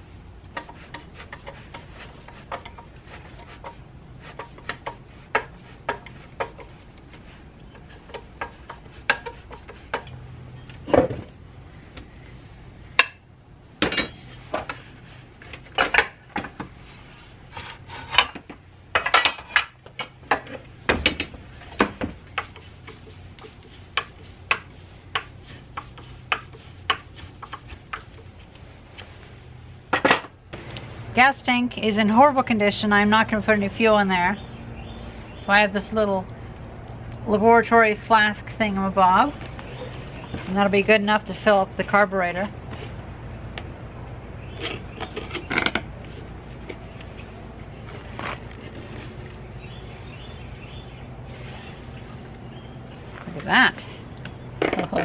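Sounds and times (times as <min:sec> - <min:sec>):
low hum: 0:28.2 - 0:55.0.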